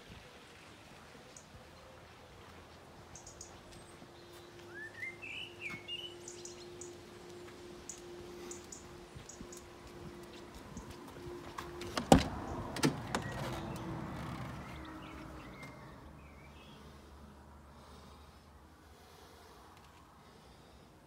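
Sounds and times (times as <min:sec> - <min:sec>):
sliding door rolling and scraping: 0:11.5 - 0:15.8.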